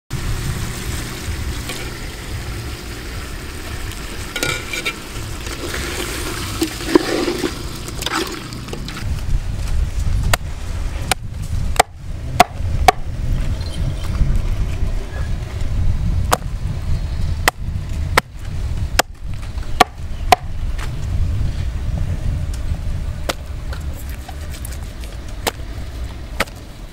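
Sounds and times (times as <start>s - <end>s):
metal ladle scraping pot: 4.3s - 9.1s.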